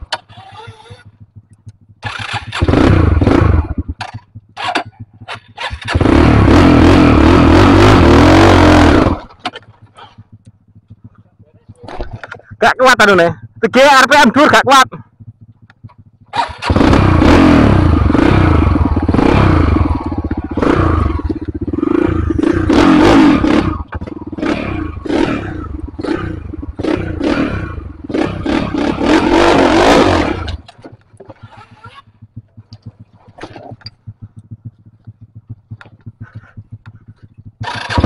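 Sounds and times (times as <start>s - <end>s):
motorcycle engine revving: 0.0s - 38.0s
faint clicks and scrapes: 9.2s - 12.6s, 30.5s - 37.6s.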